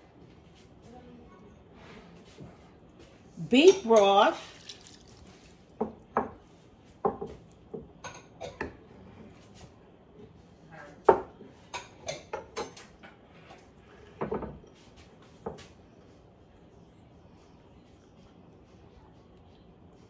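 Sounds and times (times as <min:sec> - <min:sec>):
bowls and spoon clinking: 0:03.5 - 0:09.4, 0:11.1 - 0:15.7.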